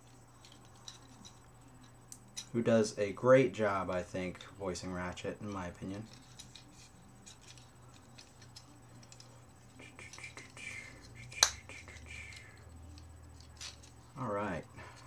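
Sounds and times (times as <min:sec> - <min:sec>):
plastic toy parts clicking: 0:05.5 - 0:09.4.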